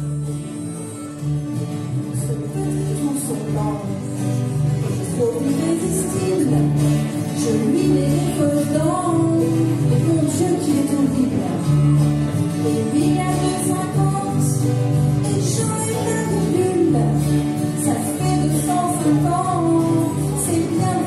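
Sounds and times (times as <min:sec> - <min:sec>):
guitars strumming: 0:00.0 - 0:21.0
held bass notes: 0:00.0 - 0:21.0
woman singing: 0:02.0 - 0:04.2, 0:04.9 - 0:12.0, 0:12.6 - 0:21.0.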